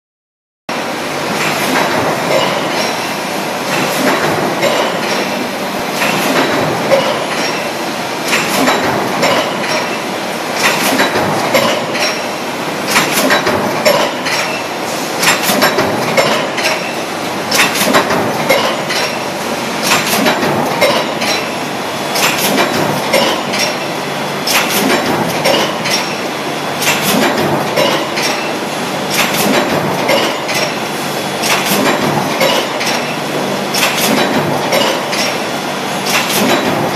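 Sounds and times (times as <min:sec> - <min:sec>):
stamping press mechanical din: 0:00.7 - 0:36.9
sharp metallic clanks: 0:01.4 - 0:05.4, 0:06.0 - 0:12.3.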